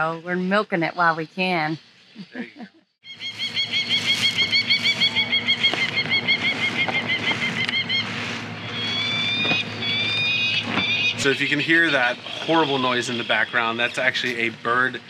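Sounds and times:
steady low hum: 0.0 - 15.0
rising whistled bird calls: 3.0 - 14.1
rapid electronic chirps: 3.0 - 15.0.

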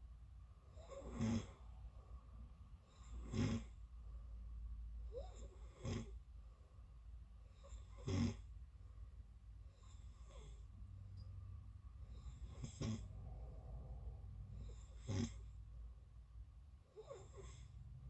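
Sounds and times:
person snoring: 0.8 - 1.7, 2.9 - 3.8, 12.1 - 13.2, 14.6 - 15.6.

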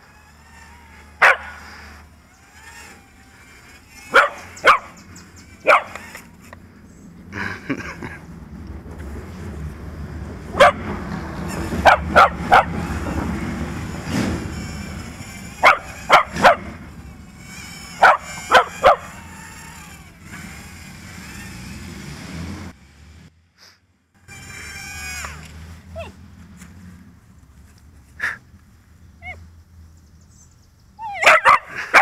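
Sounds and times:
quadcopter motors whirring: 0.0 - 23.3, 24.1 - 29.5, 30.3 - 32.0
small dog barking: 1.2 - 1.5, 4.1 - 5.0, 5.6 - 6.0, 10.6 - 10.9, 11.8 - 12.8, 15.6 - 16.8, 18.0 - 19.2, 31.1 - 32.0.

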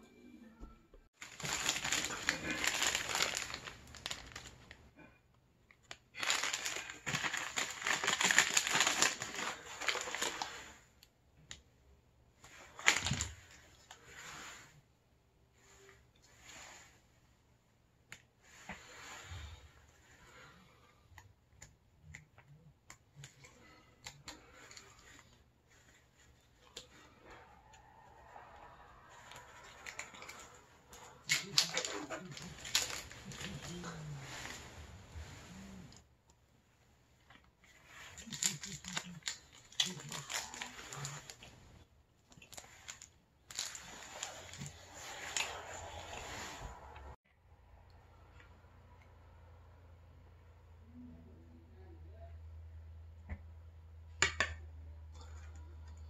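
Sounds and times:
plastic wrapper crinkling: 1.2 - 4.8, 5.8 - 10.7, 12.6 - 13.9, 27.7 - 35.1, 38.0 - 46.5.

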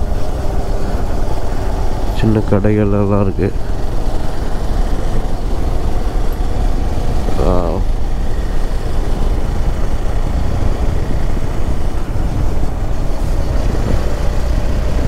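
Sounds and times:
motorcycle engine running: 0.0 - 15.0
wind noise on microphone: 3.6 - 15.0.

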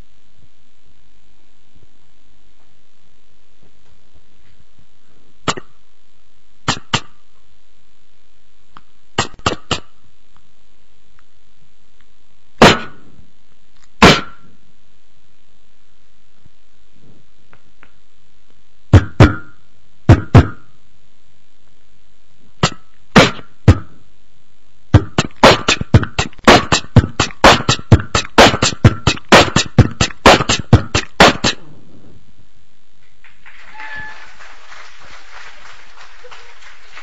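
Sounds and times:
beatboxing: 5.5 - 5.8, 6.6 - 7.3, 9.2 - 10.0, 12.6 - 13.0, 14.0 - 14.4, 22.6 - 23.9, 24.9 - 31.7
audience applause: 33.2 - 37.0.

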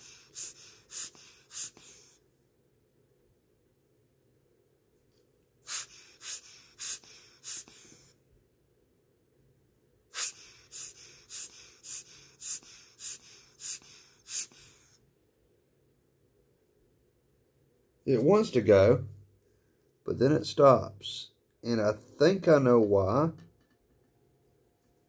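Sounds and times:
hand air blower puffing: 0.0 - 2.1, 5.6 - 8.1, 10.1 - 14.9.

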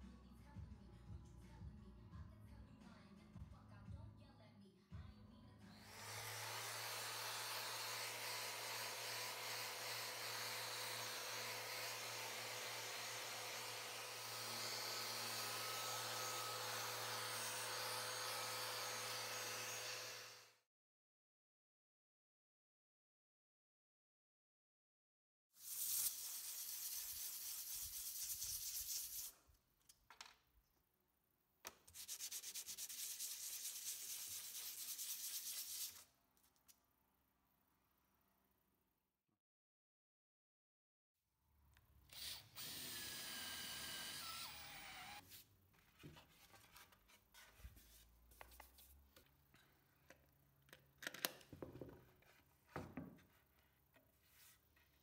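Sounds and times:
sanding disc rubbing: 25.6 - 29.3, 31.9 - 36.0.

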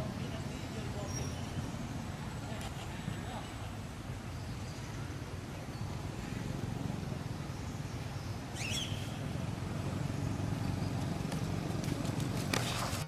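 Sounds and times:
low outdoor rumble: 0.0 - 13.0
high chirping call: 7.4 - 9.2.

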